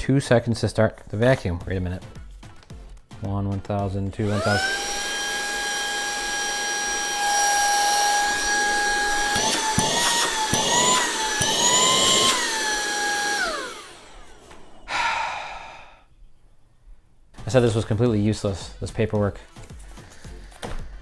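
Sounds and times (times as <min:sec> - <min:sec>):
handheld vacuum motor whine: 0:04.2 - 0:15.0.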